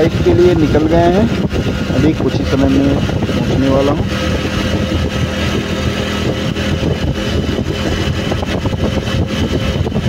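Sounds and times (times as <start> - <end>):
road noise: 0.0 - 10.0
vehicle engine running: 0.0 - 10.0.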